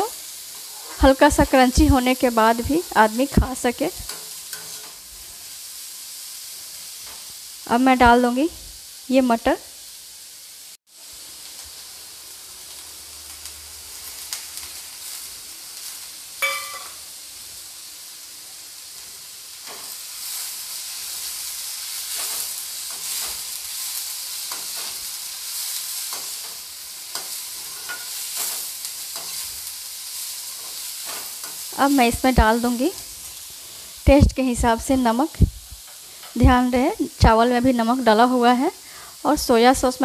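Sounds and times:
vegetables sizzling in hot oil: 0.0s - 40.0s
spatula scraping and knocking pan: 4.0s - 5.0s, 16.4s - 17.0s, 26.1s - 29.5s
ringing clink: 16.4s - 17.0s.

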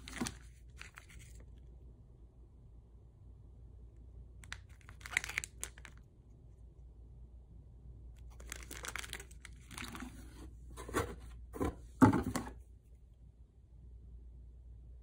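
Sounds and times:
cardboard box rustling: 0.0s - 1.3s, 8.5s - 12.6s
plastic wrappers rustling: 4.7s - 6.0s, 8.3s - 10.2s.

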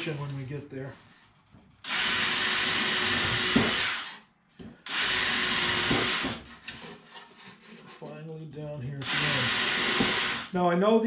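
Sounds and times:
cordless drill boring wood: 1.8s - 6.8s, 9.0s - 10.6s.

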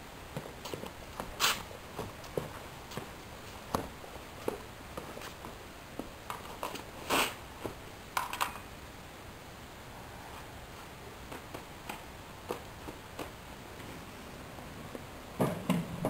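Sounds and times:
footsteps on pavement: 0.3s - 6.9s.

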